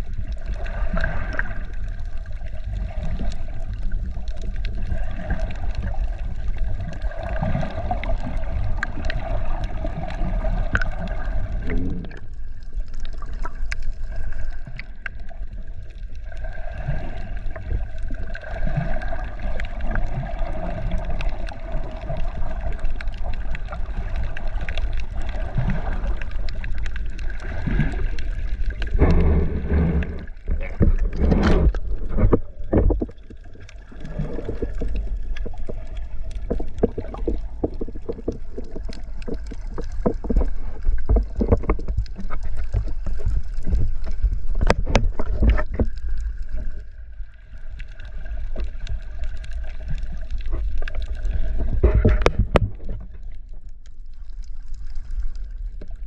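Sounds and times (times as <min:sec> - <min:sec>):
water sloshing around microphone: 0:00.0 - 0:56.0
low rumble: 0:24.4 - 0:47.7.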